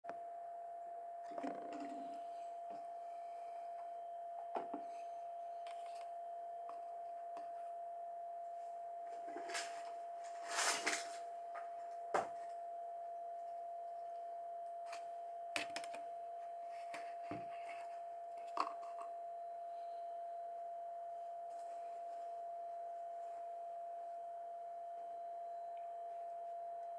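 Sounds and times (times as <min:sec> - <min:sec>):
constant steady whine: 0:00.1 - 0:26.9
objects clicking and knocking on desk: 0:15.6 - 0:16.0.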